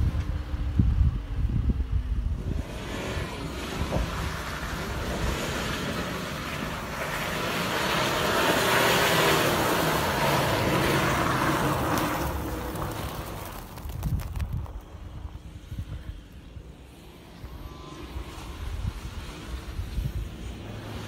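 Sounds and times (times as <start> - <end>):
tyres spinning and flinging dirt: 2.4 - 17.4.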